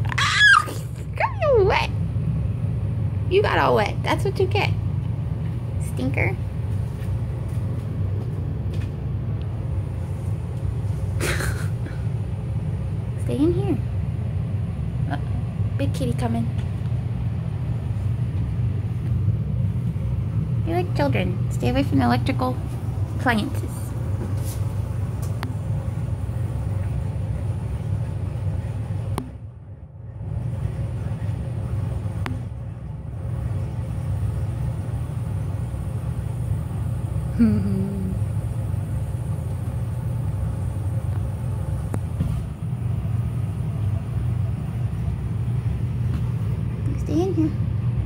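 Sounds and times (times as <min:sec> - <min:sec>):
air conditioning rumble: 0:00.0 - 0:48.0
short falling vocal sound: 0:37.4 - 0:38.2.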